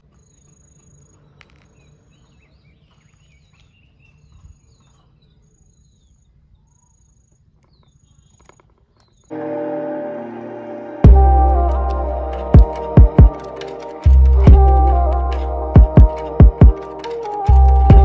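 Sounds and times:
small birds chirping: 0.0s - 9.4s.

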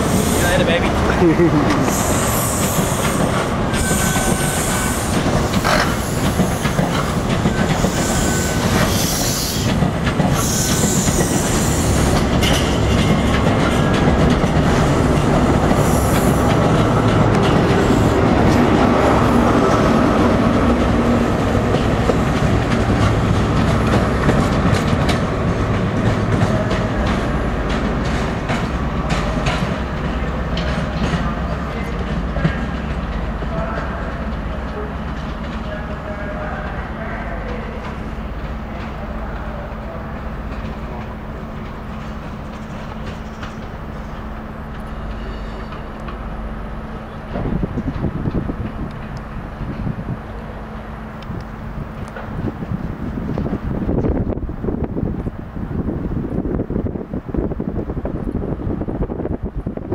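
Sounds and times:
train running noise: 0.0s - 59.9s
wheels clicking over rail joints: 5.1s - 18.8s, 20.5s - 36.8s.

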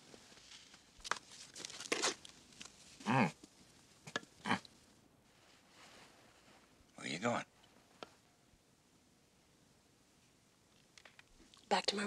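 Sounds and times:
bedclothes rustling: 5.2s - 6.8s.

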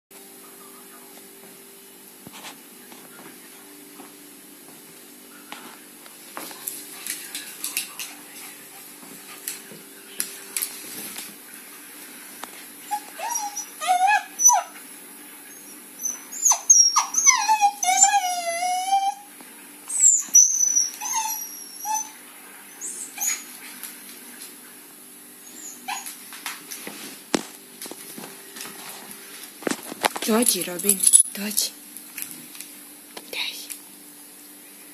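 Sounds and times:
paws clicking on wooden floor: 6.4s - 11.3s
puppy whimpering and yipping: 12.9s - 14.8s, 16.0s - 19.3s, 19.9s - 22.2s, 25.5s - 26.2s.

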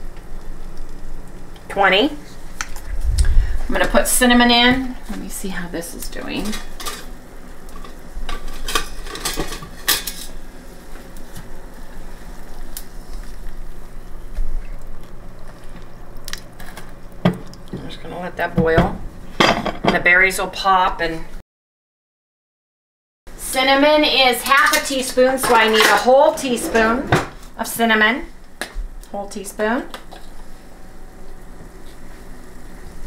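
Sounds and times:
fruit sizzling in saucepan: 0.0s - 19.4s, 23.8s - 33.0s
woman speaking: 1.7s - 2.2s, 3.7s - 6.6s, 17.8s - 19.0s, 19.8s - 21.4s, 23.4s - 28.4s, 29.1s - 30.0s.

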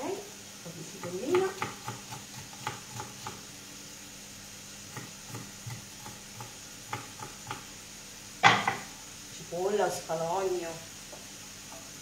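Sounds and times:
oil sizzling in a pan: 0.0s - 12.0s
knife tapping on cutting board: 1.0s - 3.4s, 5.0s - 7.6s, 8.4s - 8.8s.

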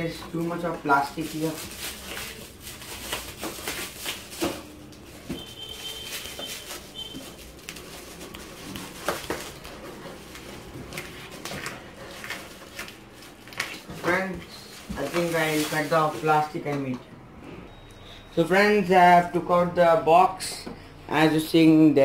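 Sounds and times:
plastic wrap crinkling: 0.0s - 16.6s.

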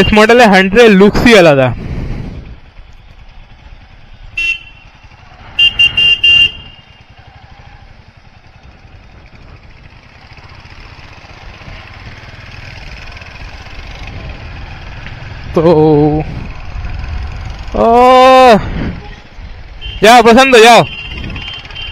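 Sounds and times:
low engine rumble: 1.7s - 19.8s
vehicle horn honking: 4.3s - 7.2s, 19.0s - 21.9s.

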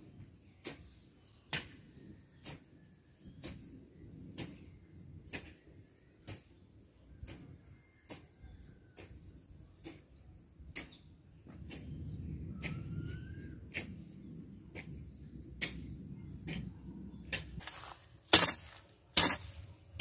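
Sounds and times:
hoe blade scraping earth: 17.3s - 20.0s
hoe chopping into soil: 17.3s - 20.0s.

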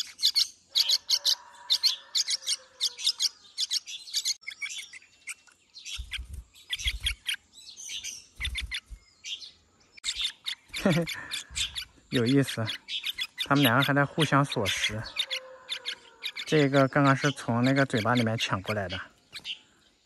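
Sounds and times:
fledglings begging chirps: 0.0s - 20.0s.

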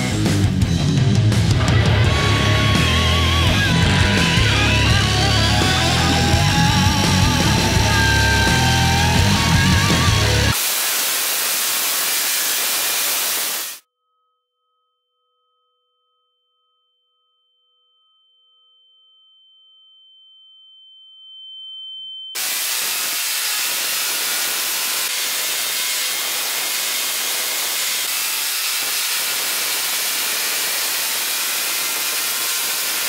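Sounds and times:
tesla coil arcs buzzing: 2.2s - 13.8s, 22.4s - 33.0s.

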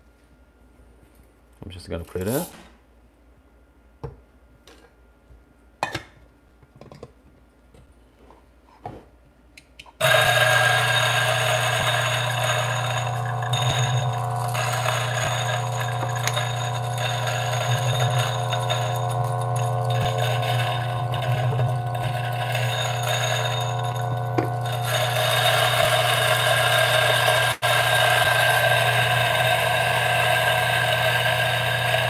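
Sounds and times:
coffee grinder running: 10.0s - 32.0s.

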